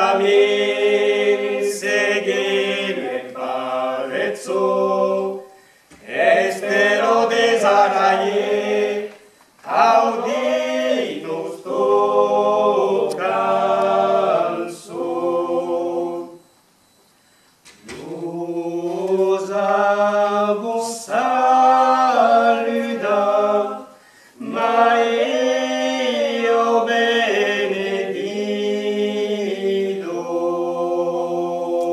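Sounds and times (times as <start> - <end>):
group singing a cappella: 0.0 - 16.6, 17.8 - 31.9.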